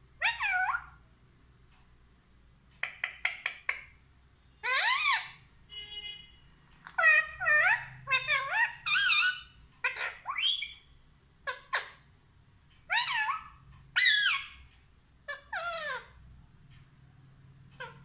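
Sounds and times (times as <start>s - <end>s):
parakeet squeaky calls: 0.2s - 1.0s, 4.6s - 5.4s, 6.9s - 12.0s, 12.9s - 14.7s, 15.3s - 16.2s, 17.8s - 18.0s.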